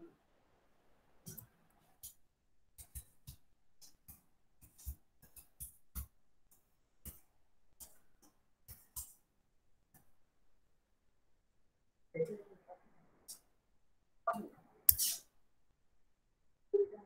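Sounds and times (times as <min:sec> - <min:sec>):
faint irregular clicks and taps: 0:01.2 - 0:10.3, 0:13.2 - 0:13.6.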